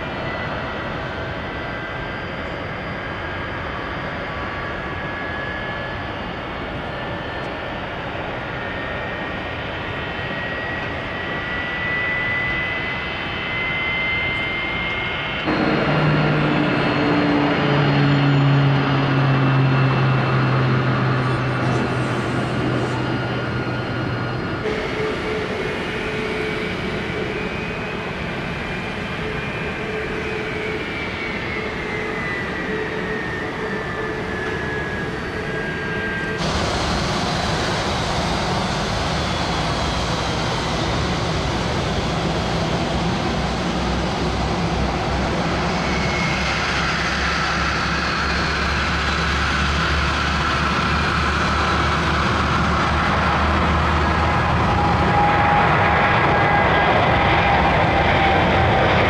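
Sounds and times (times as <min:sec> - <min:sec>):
jet engines with turbine whine: 0:00.0 - 0:59.0.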